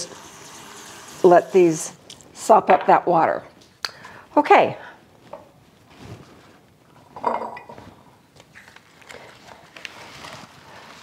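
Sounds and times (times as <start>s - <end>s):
kitchenware clinking: 7.1s - 7.8s.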